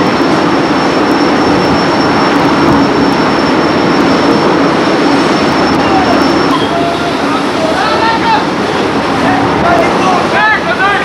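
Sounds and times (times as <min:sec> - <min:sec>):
thin high whine: 0:00.0 - 0:11.0
wind and rough sea roaring: 0:00.0 - 0:11.0.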